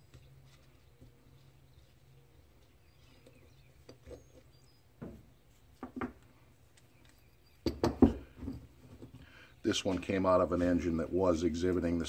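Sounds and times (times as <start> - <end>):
knocks on wooden workbench: 7.7 - 8.3.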